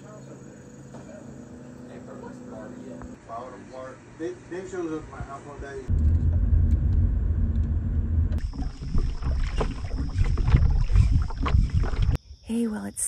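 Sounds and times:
wind and water rumble: 0:05.9 - 0:12.2
water splashes and knocks: 0:08.4 - 0:12.2
high insect trill: 0:08.4 - 0:13.0.

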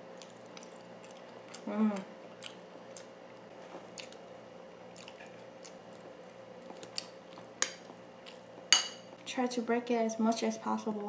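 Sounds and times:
person chewing: 0:00.0 - 0:04.3, 0:04.9 - 0:08.7
metal spoon clinking ceramic bowl: 0:08.8 - 0:09.0.

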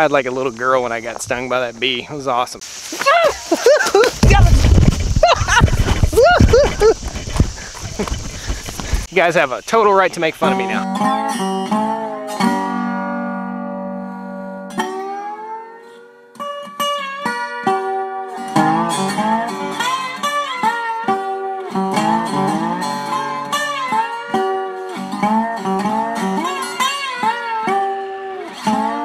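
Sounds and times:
guitar playing: 0:10.4 - 0:29.0.

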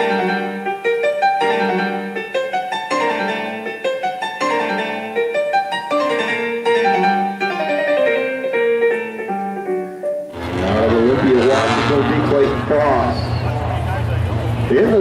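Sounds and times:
instrumental background music: 0:00.0 - 0:11.7.

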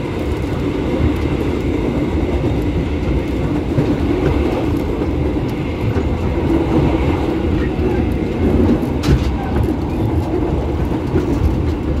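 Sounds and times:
train rumbling from inside carriage: 0:00.0 - 0:12.0.

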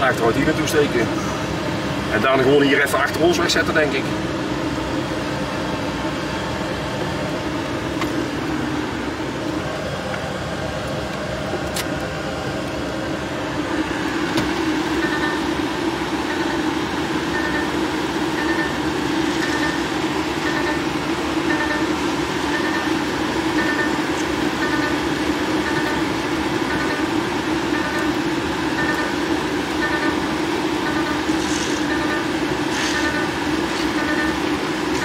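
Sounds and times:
truck engine running: 0:00.0 - 0:35.0
reversing alarm beeps: 0:15.0 - 0:15.6, 0:16.2 - 0:34.5.

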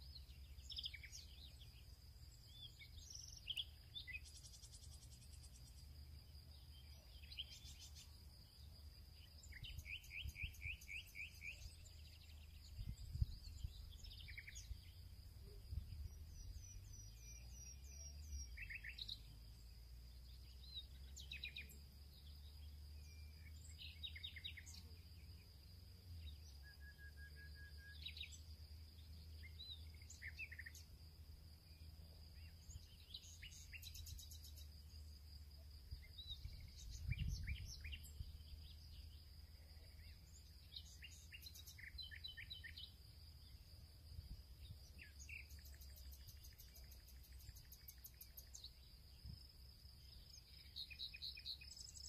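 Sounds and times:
birds chirping: 0:35.9 - 0:43.8.

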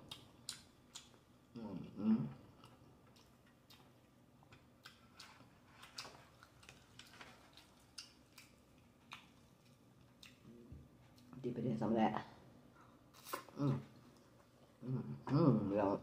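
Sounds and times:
chewing chicken: 0:02.3 - 0:11.4.

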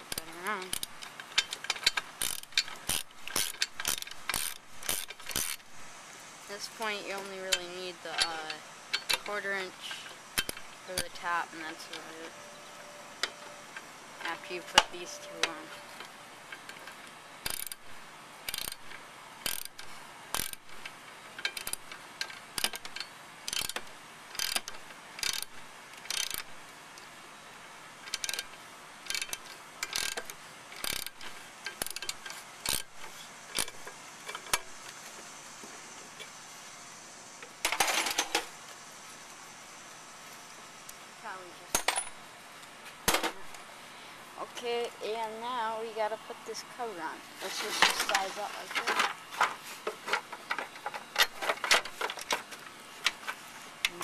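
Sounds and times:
hand ratchet clicking: 0:00.0 - 0:05.7, 0:07.5 - 0:09.4, 0:10.0 - 0:12.1, 0:14.2 - 0:26.6, 0:28.0 - 0:34.8.

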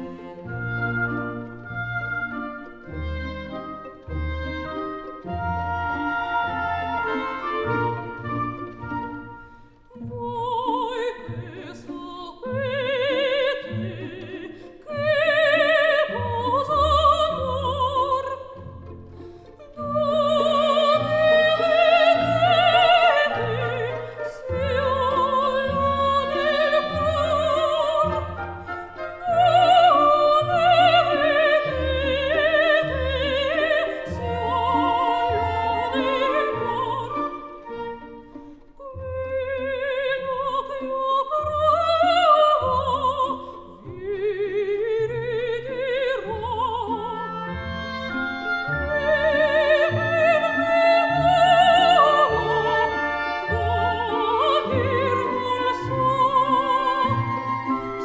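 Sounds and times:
orchestral accompaniment: 0:00.0 - 0:58.0
operatic singing voice: 0:09.9 - 0:18.7, 0:19.6 - 0:37.4, 0:38.8 - 0:48.1, 0:48.7 - 0:58.0.

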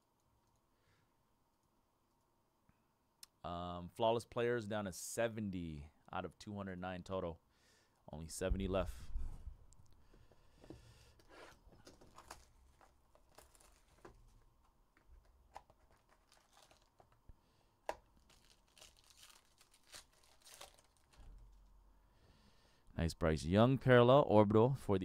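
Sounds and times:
card pack tearing and crinkling: 0:11.8 - 0:14.4, 0:15.2 - 0:17.2, 0:17.9 - 0:21.6.

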